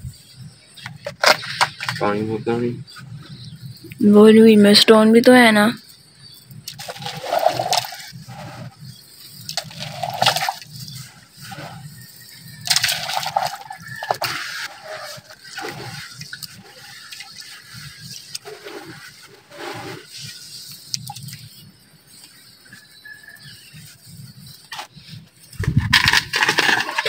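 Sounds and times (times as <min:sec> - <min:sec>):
hand stirring mud splashing: 0:09.4 - 0:10.7, 0:12.7 - 0:19.6.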